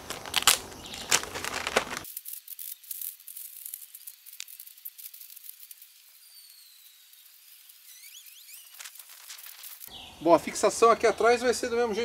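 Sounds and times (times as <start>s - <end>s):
handling rustle: 0.0s - 6.6s, 8.4s - 9.9s
faint high crackling: 0.0s - 10.0s.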